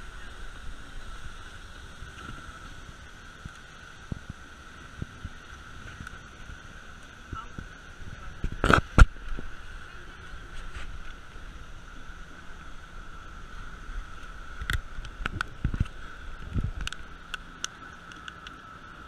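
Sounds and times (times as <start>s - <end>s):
speedboat engine running: 0.0s - 19.0s
water and wind noise: 0.0s - 19.0s.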